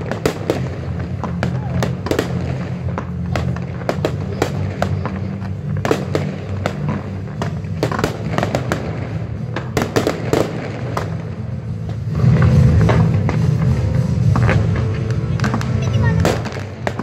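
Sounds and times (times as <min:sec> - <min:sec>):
fireworks bangs and crackling pops: 0:00.0 - 0:17.0.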